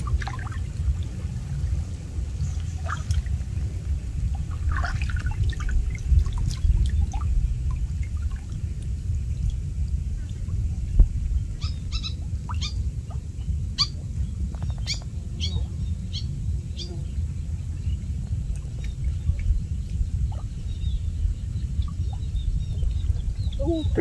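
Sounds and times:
water trickling from net: 0.0 - 13.4.

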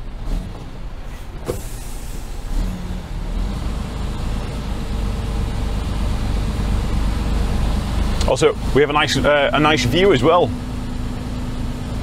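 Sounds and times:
truck diesel engine running: 0.0 - 12.0.

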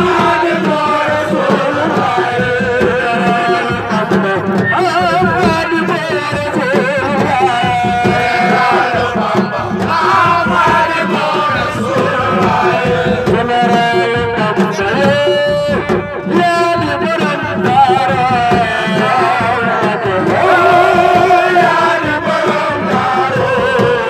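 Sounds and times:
hand drum rhythm: 0.0 - 24.0
person singing ornamented melody: 18.9 - 23.9.

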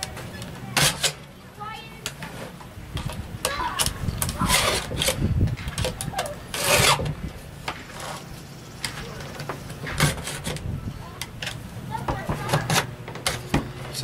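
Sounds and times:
file rasping on chain teeth: 6.5 - 7.0.

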